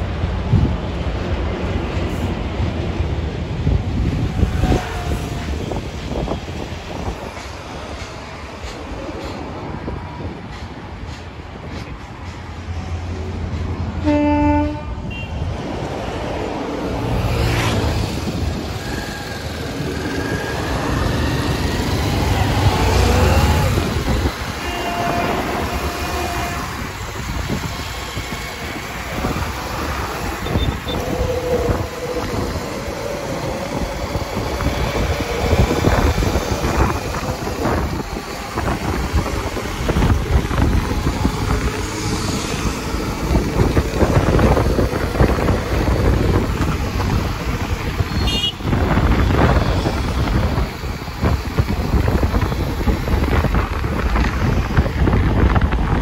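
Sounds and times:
train wheels clattering over rail joints: 4.2s - 14.0s, 18.0s - 48.1s.

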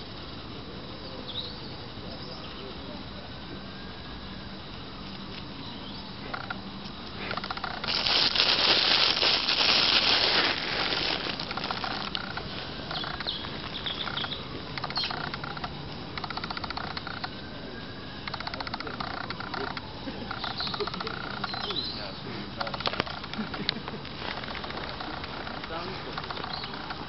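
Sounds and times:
squirrel scrabbling in dry leaves: 7.2s - 17.4s, 22.6s - 27.0s.

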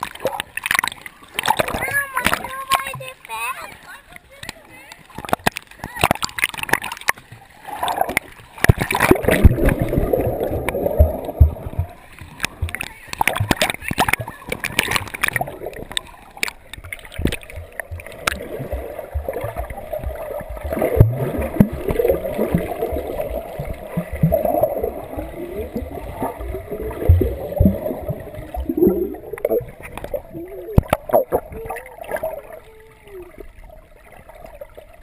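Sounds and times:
water splashing at surface: 0.0s - 35.0s
muffled underwater bubbling: 5.1s - 35.0s
swimmer kicking underwater: 5.2s - 32.6s.

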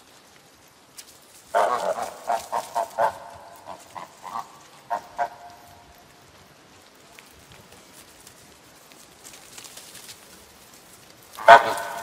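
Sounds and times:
goose honking: 1.5s - 5.9s, 11.4s - 12.0s.

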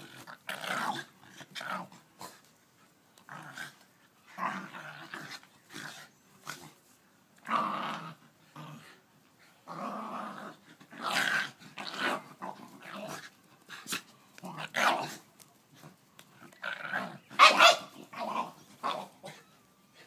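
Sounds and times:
dogs growling: 3.2s - 6.8s, 7.4s - 9.0s, 9.6s - 13.4s.

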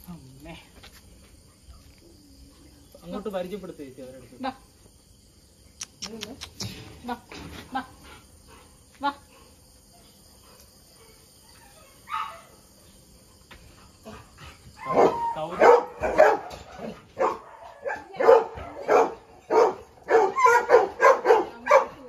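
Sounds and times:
dog barking: 12.0s - 12.6s, 14.8s - 22.0s.

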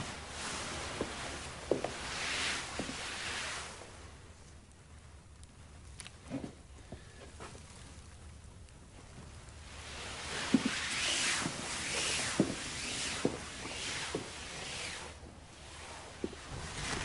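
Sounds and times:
footsteps on floor: 0.0s - 2.2s, 2.8s - 3.1s, 10.4s - 10.8s, 12.0s - 14.4s
heavy skirts swishing: 0.0s - 4.0s, 9.6s - 17.0s.

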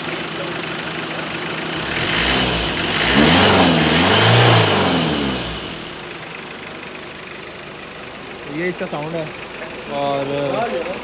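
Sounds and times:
diesel engine revving: 1.6s - 6.2s.

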